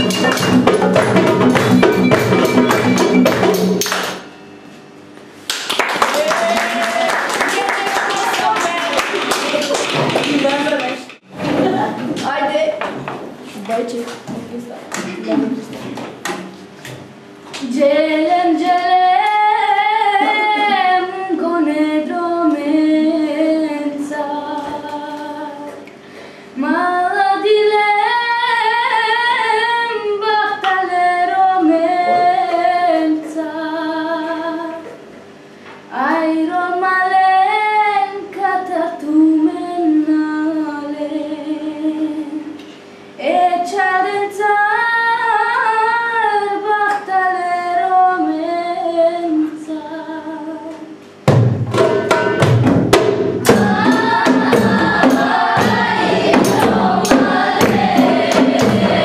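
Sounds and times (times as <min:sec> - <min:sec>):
girl singing unaccompanied: 0:17.6 - 0:25.8, 0:26.6 - 0:34.9, 0:43.2 - 0:51.0, 0:53.5 - 0:59.0.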